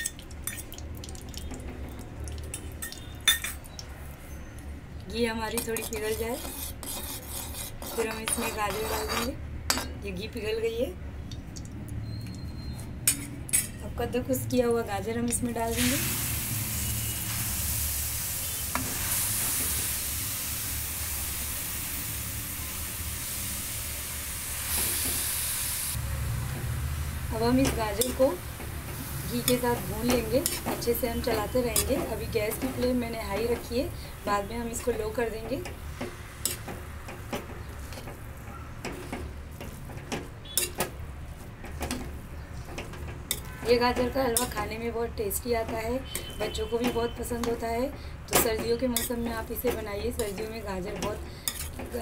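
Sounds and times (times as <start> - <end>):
steel spoon scraping metal pan: 5.5 - 10.0, 29.0 - 38.2, 38.8 - 40.9, 43.3 - 52.0
carrots sizzling in hot fat: 15.7 - 40.9.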